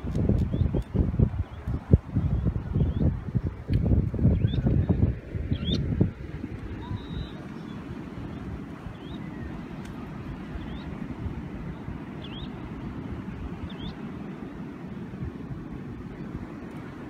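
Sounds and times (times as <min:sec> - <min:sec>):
wind rumbling on microphone: 0:00.0 - 0:17.0
high bird chirps: 0:05.5 - 0:05.9.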